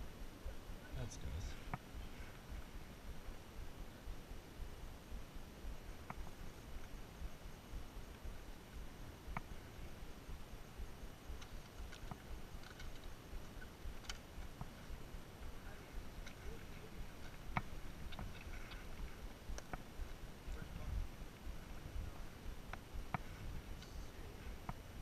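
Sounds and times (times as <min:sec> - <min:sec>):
wind rumble on microphone: 0:00.0 - 0:25.0
faint sharp clicks: 0:06.0 - 0:07.0, 0:11.0 - 0:15.0, 0:15.6 - 0:19.9, 0:22.7 - 0:24.8.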